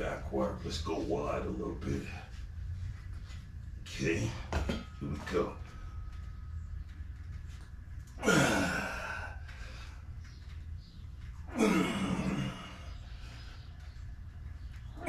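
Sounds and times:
man groaning exhales: 0:08.2 - 0:09.4.

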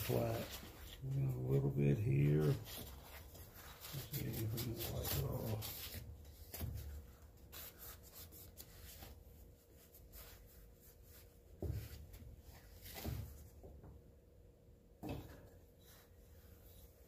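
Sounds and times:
paper towel rubbing on metal: 0:00.0 - 0:11.5.

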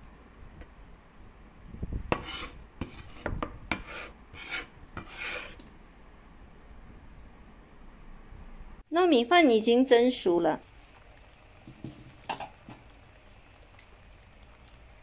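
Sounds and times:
cleaver scraping into ceramic bowl: 0:02.1 - 0:05.6.

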